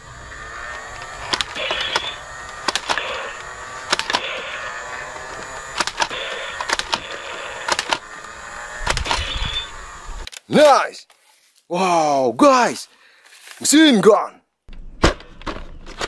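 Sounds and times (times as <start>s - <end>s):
toy blaster firing clicks: 0.6s - 10.4s.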